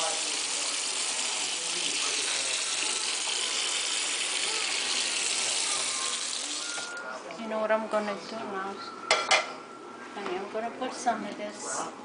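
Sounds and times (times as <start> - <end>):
water pouring into sink: 0.0 - 7.0.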